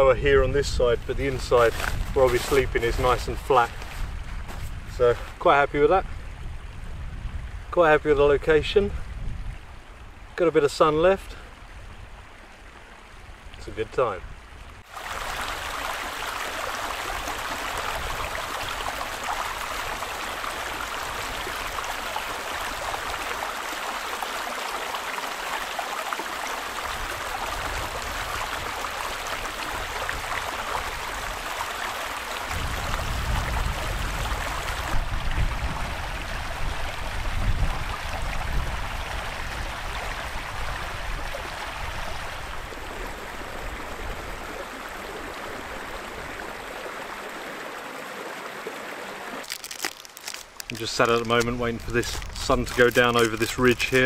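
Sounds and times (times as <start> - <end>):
stream trickling over rocks: 0.0 - 54.0.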